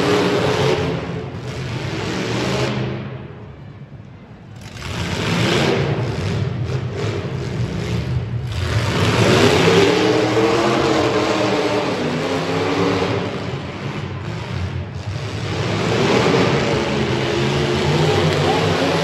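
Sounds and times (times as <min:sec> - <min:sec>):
car engines revving hard: 0:00.0 - 0:03.2, 0:04.6 - 0:19.0.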